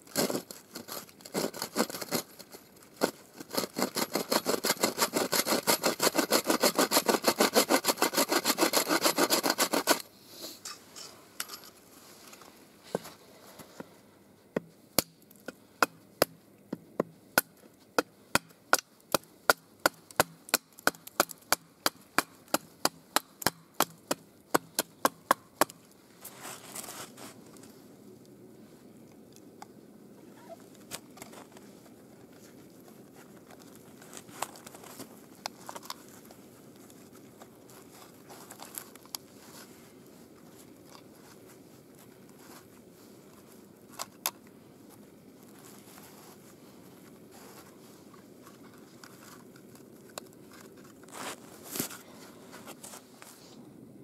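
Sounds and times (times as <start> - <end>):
bow saw cutting wood: 3.5 - 10.1
handling of wood: 10.7 - 13.9.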